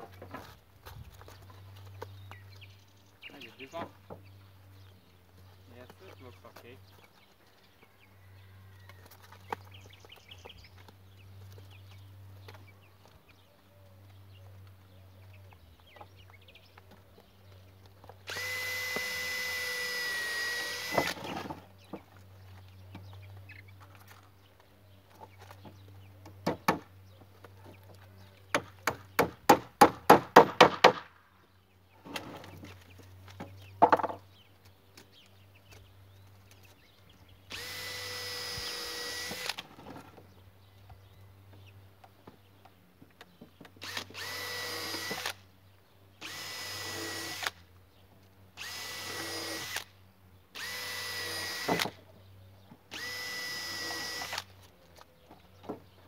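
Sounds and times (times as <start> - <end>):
power drill whining: 18.3 - 21.4, 37.5 - 39.6, 43.8 - 45.4, 46.2 - 47.6, 48.6 - 49.9, 50.6 - 51.9, 52.9 - 54.5.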